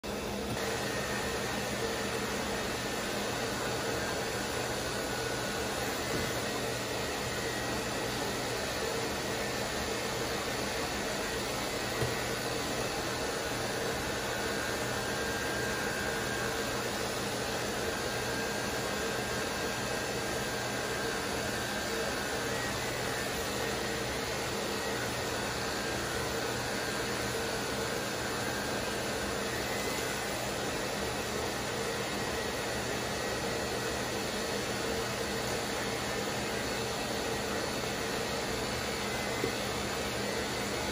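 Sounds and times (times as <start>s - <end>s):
clipper and vacuum motor whirring: 0.1s - 2.9s.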